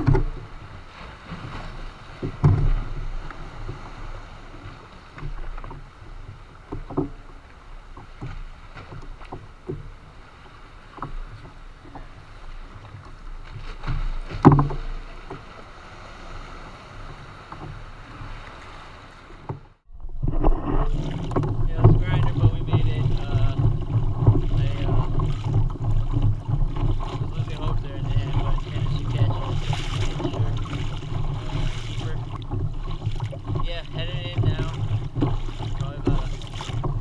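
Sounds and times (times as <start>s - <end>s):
small knocks: 0.0s - 0.4s, 2.2s - 3.8s, 5.2s - 10.0s, 12.7s - 15.5s
water lapping against hull: 0.0s - 37.0s.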